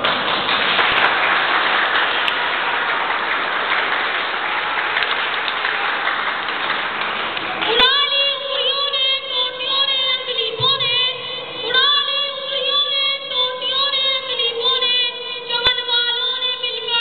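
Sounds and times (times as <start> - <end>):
boy giving sing-song speech: 7.7 - 17.0.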